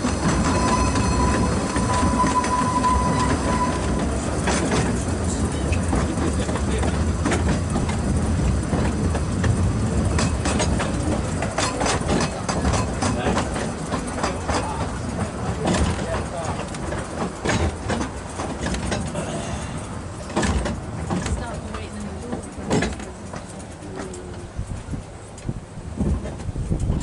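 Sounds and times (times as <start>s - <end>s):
train coaches rumbling on track: 0.0s - 27.0s
thin squeal: 0.4s - 4.0s.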